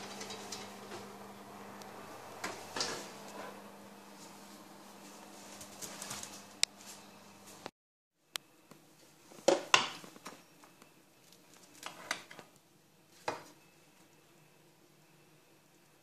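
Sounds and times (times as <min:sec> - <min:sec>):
metal spatula scraping baking pan: 0:00.0 - 0:01.1.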